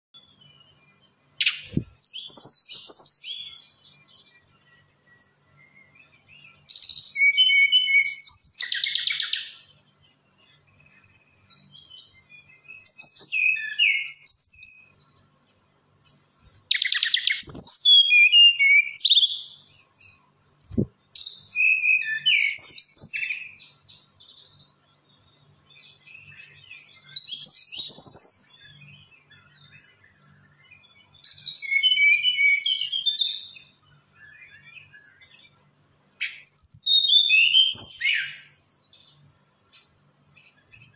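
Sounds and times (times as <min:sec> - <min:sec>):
bird whistled warbling: 0:06.7 - 0:09.6, 0:16.7 - 0:19.5, 0:20.7 - 0:23.6, 0:31.3 - 0:33.3, 0:36.2 - 0:38.6.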